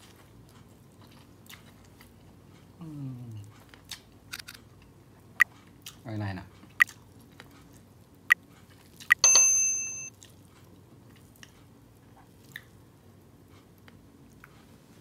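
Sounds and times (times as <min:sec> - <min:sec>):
bright bell ding: 0:09.2 - 0:10.1.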